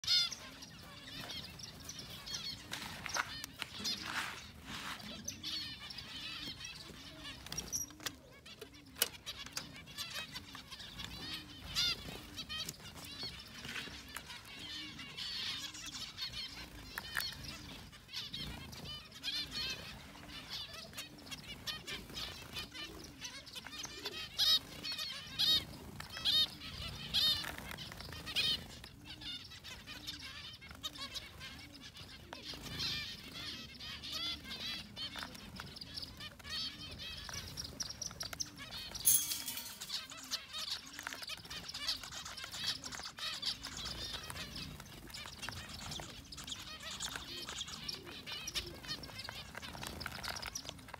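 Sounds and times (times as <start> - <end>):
wings fluttering: 0.0 - 5.6.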